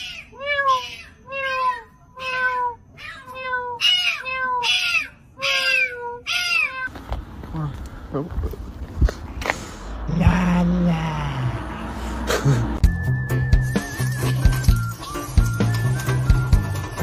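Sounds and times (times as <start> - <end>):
kitten meowing: 0.0 - 6.9.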